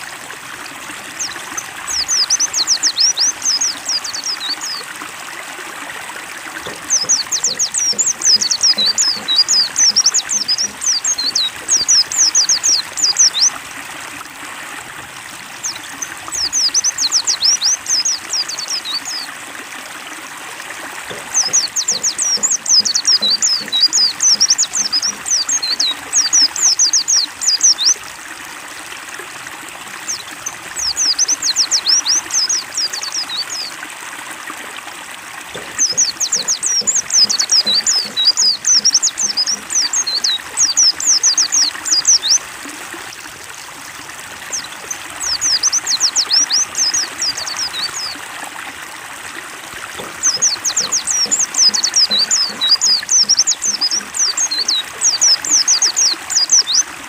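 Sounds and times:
trickling water: 0.0 - 57.0
bird twittering: 6.7 - 13.5, 21.1 - 28.0, 35.6 - 42.4, 50.0 - 56.9.

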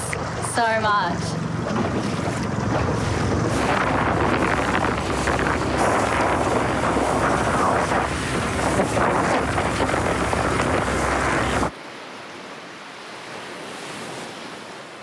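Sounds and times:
hull slapping through water: 0.0 - 11.7
wind buffeting microphone: 0.0 - 11.7
outboard motor: 0.0 - 11.8.

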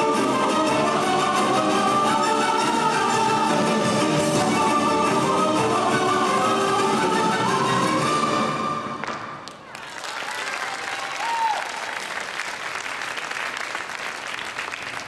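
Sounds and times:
audience applauding: 9.4 - 15.0.

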